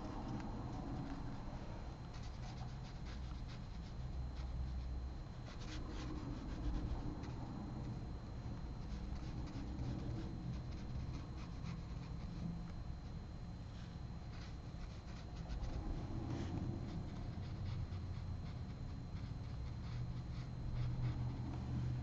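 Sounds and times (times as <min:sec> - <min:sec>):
steady low hum: 0:00.0 - 0:22.0
brush scratching on paper: 0:14.3 - 0:21.8.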